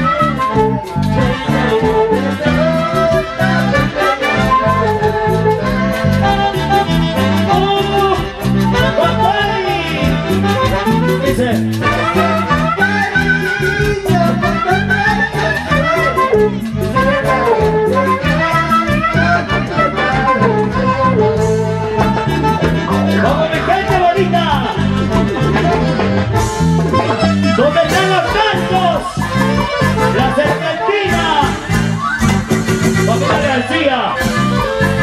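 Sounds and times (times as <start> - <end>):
live dance music: 0.0 - 35.0.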